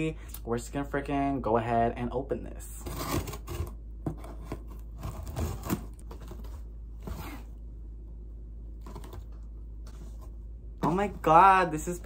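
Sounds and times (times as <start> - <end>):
knife scraping tape and cardboard: 2.8 - 7.4.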